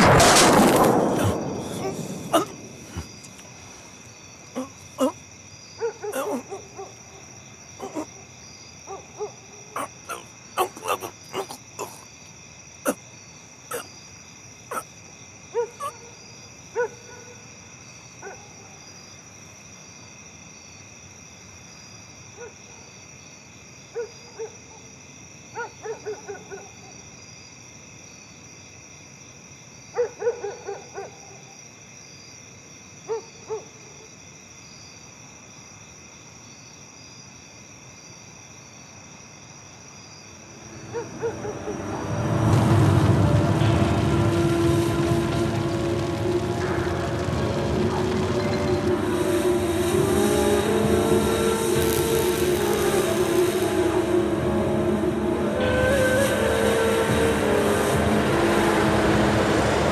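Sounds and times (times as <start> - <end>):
owl hooting: 6.0 - 6.8, 9.8 - 12.0.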